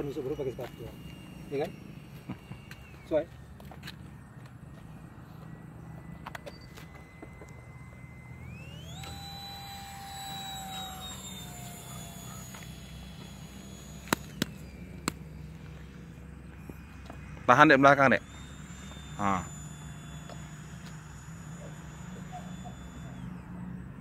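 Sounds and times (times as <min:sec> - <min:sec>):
engine whine: 0:00.0 - 0:24.0
low steady hum: 0:00.0 - 0:24.0.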